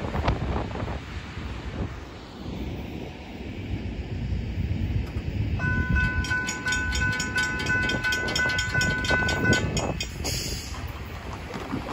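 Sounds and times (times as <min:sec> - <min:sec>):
railroad crossing bell ringing: 0:05.6 - 0:10.3.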